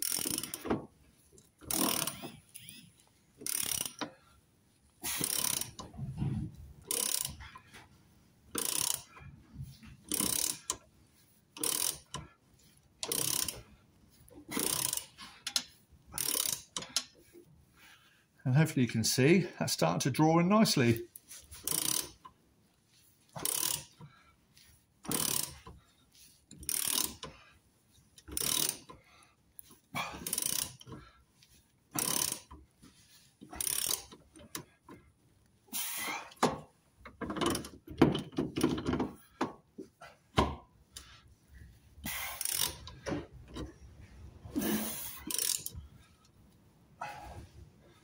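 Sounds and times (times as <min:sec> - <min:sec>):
ratchet wrench clicking: 0:00.0 - 0:00.7, 0:01.6 - 0:04.1, 0:05.1 - 0:05.9, 0:06.9 - 0:07.4, 0:08.6 - 0:09.1, 0:10.1 - 0:10.8, 0:11.6 - 0:12.3, 0:13.0 - 0:13.6, 0:14.5 - 0:17.1, 0:21.6 - 0:22.2, 0:23.4 - 0:24.0, 0:25.1 - 0:25.7, 0:26.5 - 0:27.3, 0:28.2 - 0:29.0, 0:30.2 - 0:31.0, 0:32.0 - 0:32.6, 0:33.5 - 0:34.7, 0:42.1 - 0:43.0, 0:44.6 - 0:45.8.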